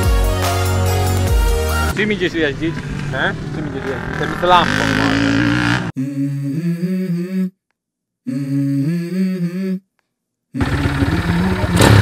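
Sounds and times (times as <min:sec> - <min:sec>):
loud rough noise: 0:02.0 - 0:05.9, 0:10.6 - 0:12.0
hummed tune: 0:05.9 - 0:07.6, 0:08.2 - 0:09.9.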